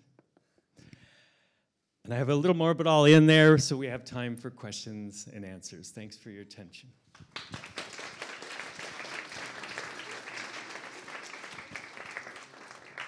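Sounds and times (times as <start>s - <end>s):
audience applauding: 7.2s - 13.0s.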